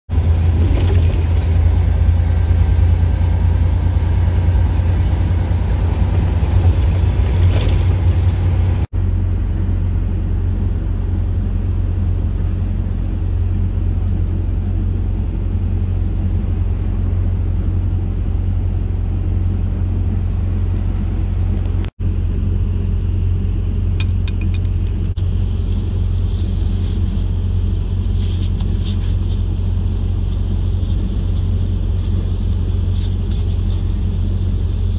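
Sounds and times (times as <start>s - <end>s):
diesel truck engine idling: 0.1s - 34.9s.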